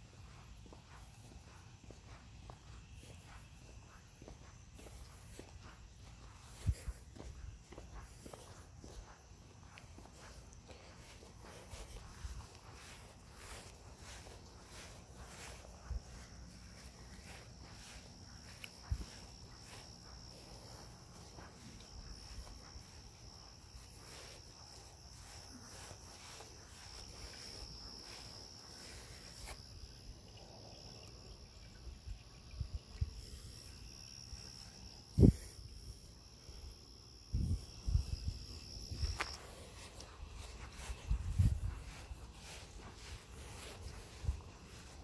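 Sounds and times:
crickets trilling: 0.0 - 45.0.

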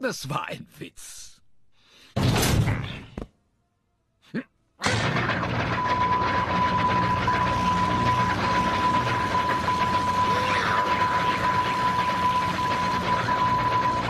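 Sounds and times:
vacuum cleaner running: 5.3 - 14.0
high whine: 5.5 - 14.0.

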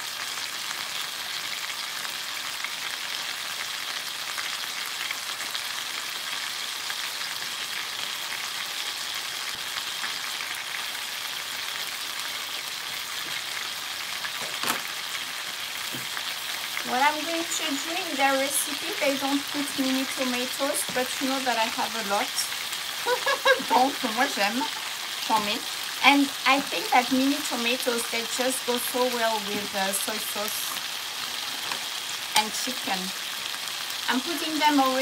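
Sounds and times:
chicken sizzling in a frying pan: 0.0 - 35.0
sauce bubbling: 17.9 - 26.0.

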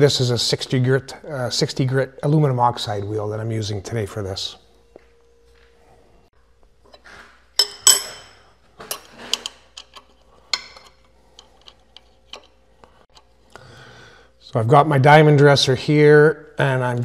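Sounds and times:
metal clinks and taps: 7.6 - 12.6.

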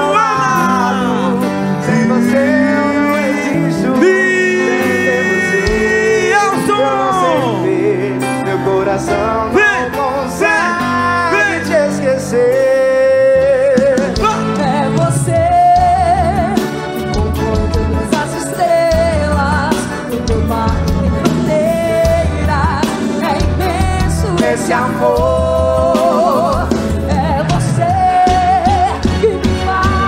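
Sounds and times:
person singing long bending notes: 0.0 - 8.2
folk dance band playing: 0.0 - 30.0.

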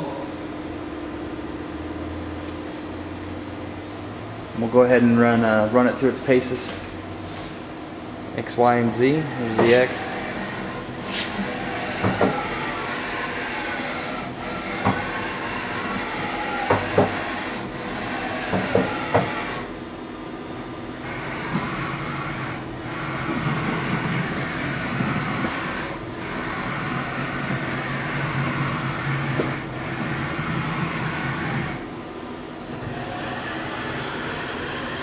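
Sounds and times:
machine servo whine: 8.8 - 19.7, 20.9 - 31.9, 32.7 - 35.0.

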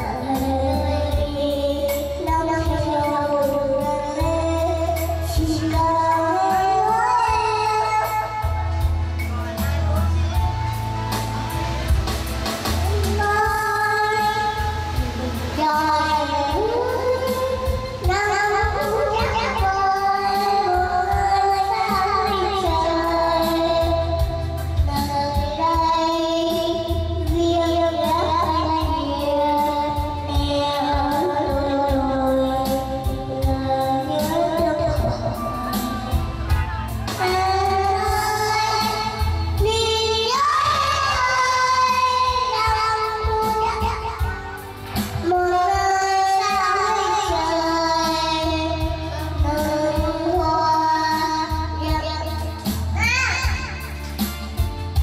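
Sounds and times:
child singing a slow ballad: 0.0 - 55.0
karaoke backing track: 0.0 - 55.0.

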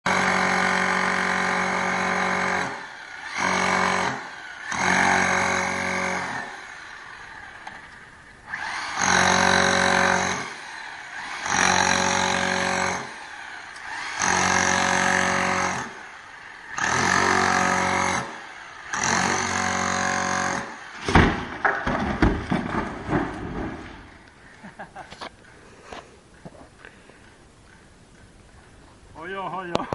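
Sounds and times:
demolition hammer chiselling concrete: 0.1 - 6.9, 8.5 - 23.8
broken concrete crashing down: 21.0 - 24.1.

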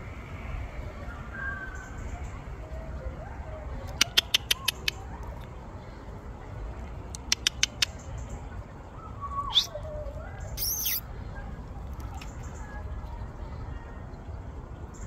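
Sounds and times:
squirrel distress squeaks: 9.5 - 9.7, 10.6 - 11.0.

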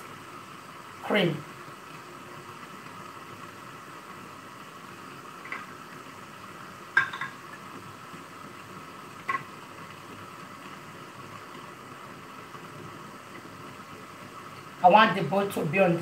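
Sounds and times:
faint hiss: 0.0 - 16.0
glass jugs clinking: 7.0 - 7.4.

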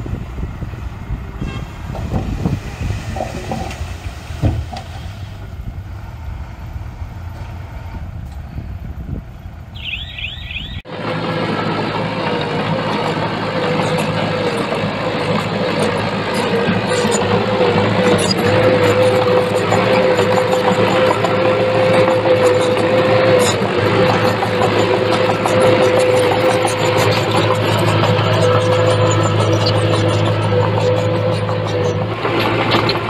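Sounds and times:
heavy diesel engine rumbling: 0.0 - 33.0
high squeaks: 9.8 - 10.8, 18.0 - 32.1.

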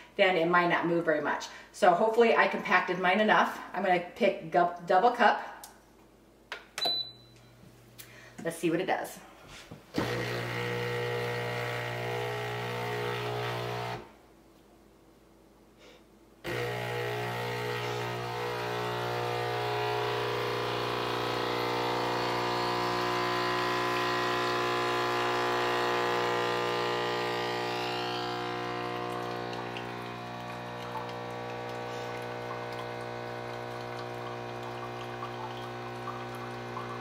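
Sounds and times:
espresso machine pump buzzing: 9.9 - 14.1, 16.4 - 37.0.

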